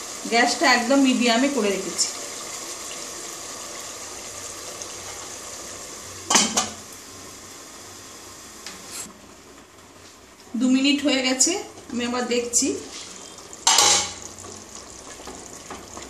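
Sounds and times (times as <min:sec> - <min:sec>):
food simmering in a pot: 0:00.0 - 0:10.5, 0:11.1 - 0:16.0
metal pot lid clanking: 0:13.6 - 0:14.2.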